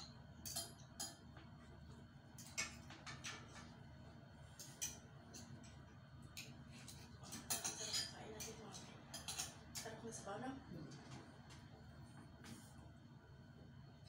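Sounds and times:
cutlery clinking on ceramic plate: 6.9s - 9.9s.

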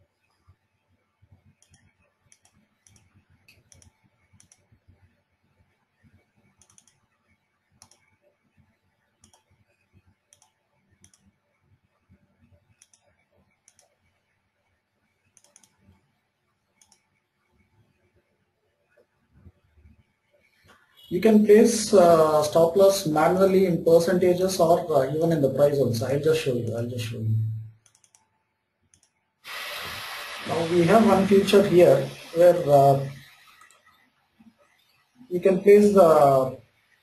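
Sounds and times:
faint computer clicks: 1.6s - 4.7s, 6.6s - 7.0s, 7.8s - 8.1s, 9.2s - 9.5s, 10.3s - 11.3s, 12.8s - 14.0s, 15.3s - 16.0s, 16.8s - 17.1s, 27.8s - 28.3s.

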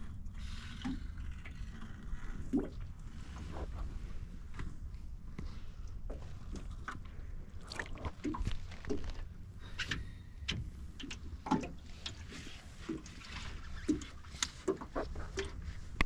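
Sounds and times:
water slapping against hull: 6.0s - 16.0s.

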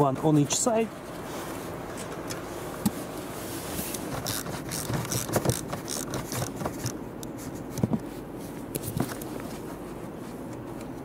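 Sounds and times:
ratchet clicking and scraping: 4.1s - 7.0s.

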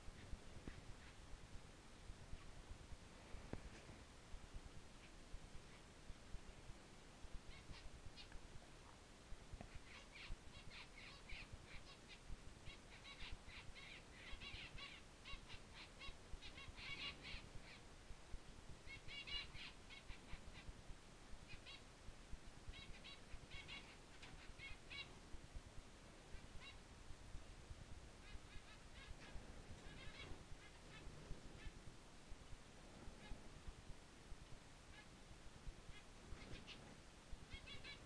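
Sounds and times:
low background hiss: 0.0s - 38.0s
bird chirping: 7.4s - 9.0s, 9.6s - 17.9s, 18.8s - 20.7s, 21.5s - 21.8s, 22.7s - 25.2s, 28.2s - 31.8s, 35.9s - 38.0s.

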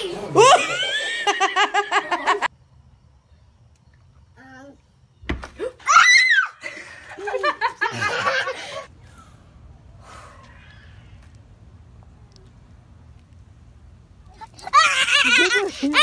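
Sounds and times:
child laughing: 0.0s - 2.5s, 7.1s - 8.9s, 14.3s - 16.0s
child squealing: 14.4s - 16.0s.

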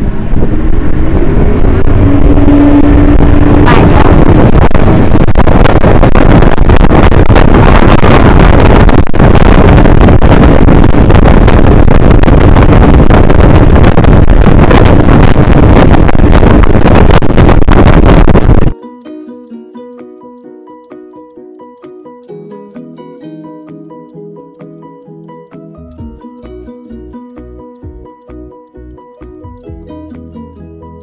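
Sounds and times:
boat engine running: 0.0s - 18.5s
wind on microphone: 0.0s - 18.8s.

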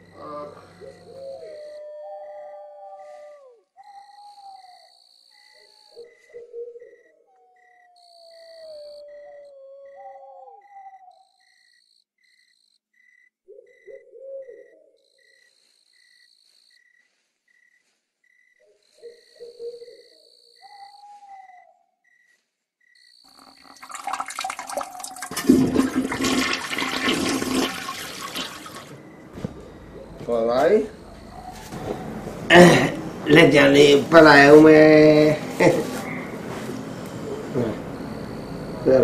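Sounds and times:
owl hooting: 0.0s - 11.8s, 13.5s - 17.2s, 18.6s - 22.3s, 26.4s - 32.3s, 34.2s - 39.0s.

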